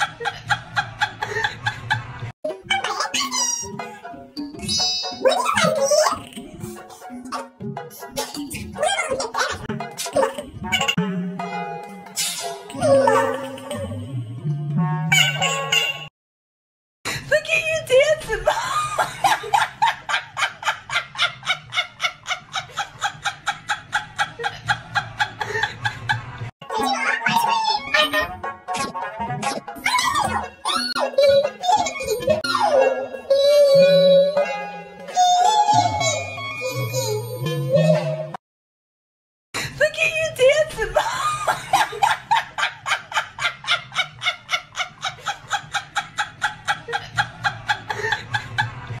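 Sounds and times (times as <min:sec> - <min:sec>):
woman laughing: 0:18.3 - 0:25.9, 0:40.7 - 0:48.7.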